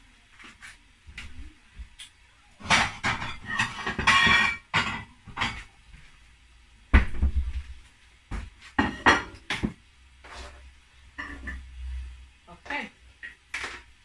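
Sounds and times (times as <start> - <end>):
plate clinking against dishes: 2.6 - 5.6.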